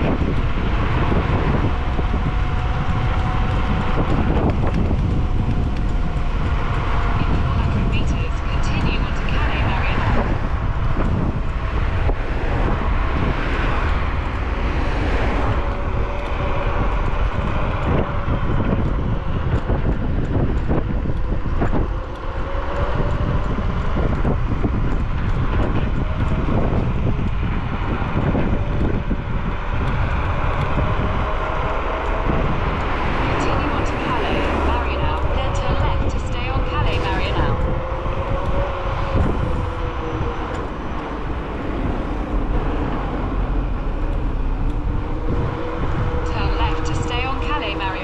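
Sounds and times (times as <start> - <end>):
scooter road noise: 0.0 - 48.0
wind rush on microphone: 0.0 - 48.0
faint whine: 40.7 - 48.0.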